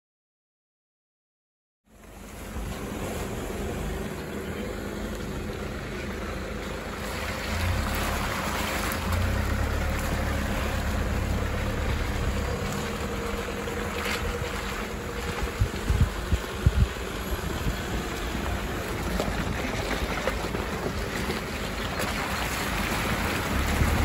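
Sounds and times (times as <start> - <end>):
vehicle engines rumbling: 1.9 - 24.0
wind noise on microphone: 10.6 - 21.4, 22.6 - 24.0.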